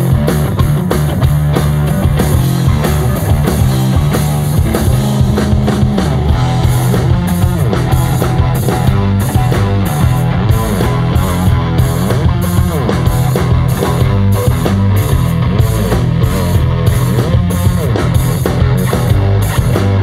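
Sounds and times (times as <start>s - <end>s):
rock band playing live: 0.0s - 20.0s.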